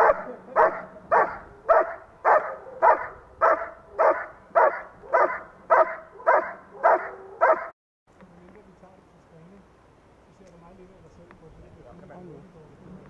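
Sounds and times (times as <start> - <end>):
dog barking rhythmically: 0.0 - 7.7.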